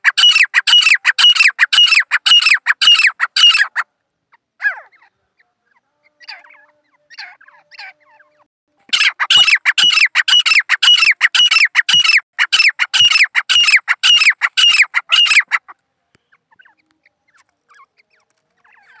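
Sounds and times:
francolin calling: 0:00.0 - 0:03.8, 0:09.0 - 0:19.0.

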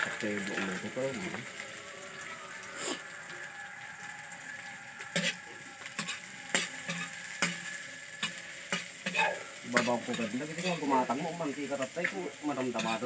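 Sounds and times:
onions sizzling in oil: 0:00.0 - 0:13.0
utensil scraping a wok: 0:04.7 - 0:13.0.

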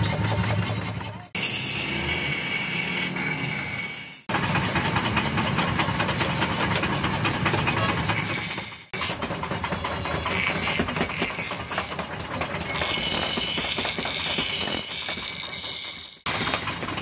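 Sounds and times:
grinding wheel rattling: 0:04.2 - 0:17.0.

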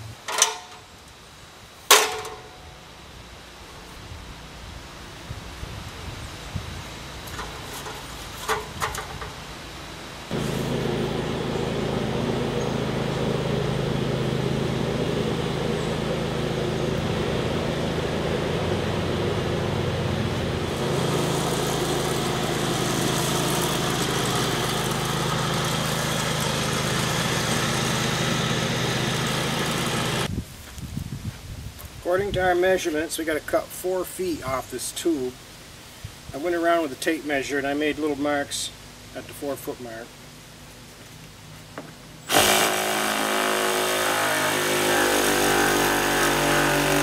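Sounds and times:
lawn tractor engine running: 0:01.9 - 0:02.8, 0:07.0 - 0:30.3, 0:41.9 - 0:47.0.

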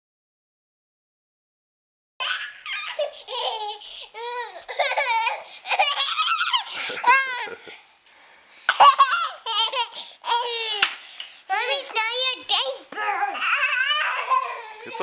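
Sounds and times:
toddler laughing and squealing: 0:02.2 - 0:07.7, 0:08.8 - 0:10.8, 0:13.2 - 0:15.0.

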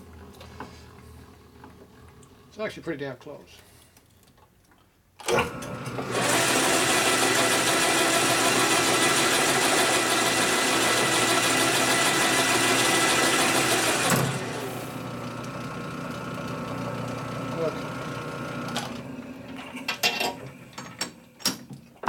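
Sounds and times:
metal lathe running: 0:05.3 - 0:20.4.

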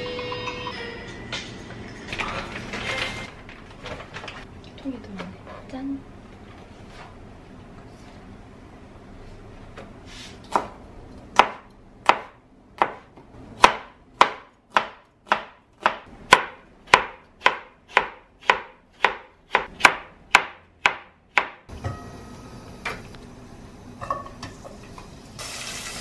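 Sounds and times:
knife chopping onion on board: 0:10.5 - 0:21.7.

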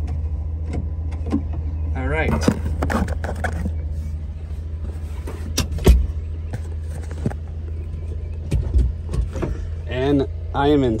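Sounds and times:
truck engine humming: 0:00.0 - 0:11.0.

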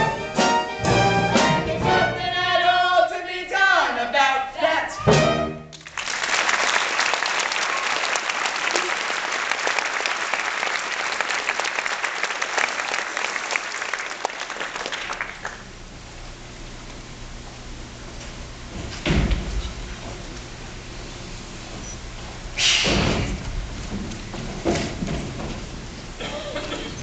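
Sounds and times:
audience applause: 0:05.7 - 0:15.7.

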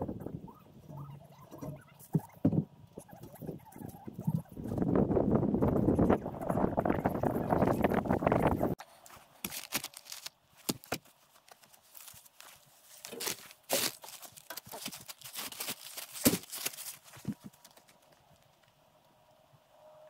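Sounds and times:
plastic sheeting crinkling: 0:08.7 - 0:18.6.

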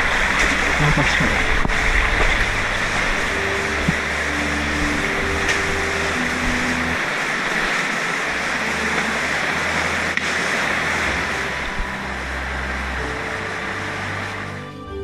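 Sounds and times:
river water flowing: 0:00.0 - 0:15.0.

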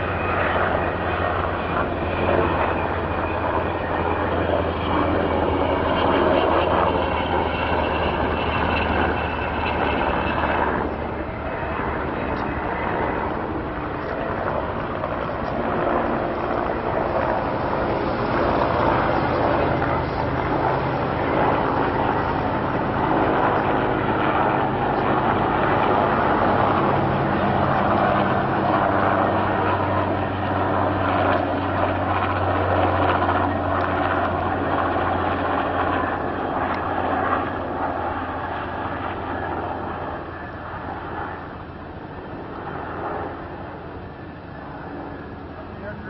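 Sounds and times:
aircraft engine drone overhead: 0:00.0 - 0:46.0.

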